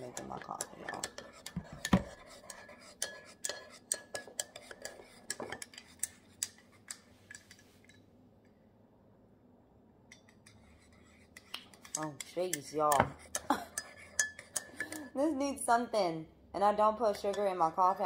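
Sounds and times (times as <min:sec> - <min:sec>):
spoon clinking against cup: 0:13.4 - 0:15.1.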